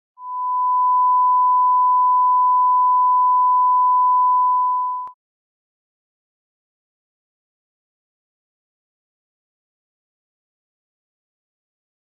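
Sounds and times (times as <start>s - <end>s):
steady pure test tone: 0.2s - 5.1s.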